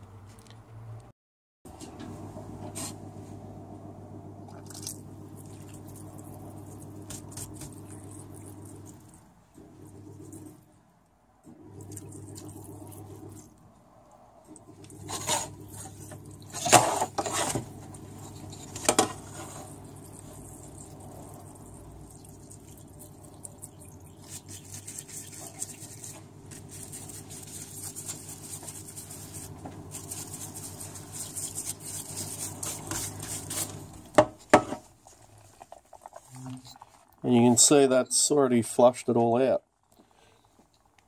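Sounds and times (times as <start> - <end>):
solvent running: 1.7 - 10.7
pump humming: 1.8 - 10.7, 11.5 - 13.6, 14.5 - 34.7
brush scrubbing: 4.7 - 10.6, 14.8 - 34.2.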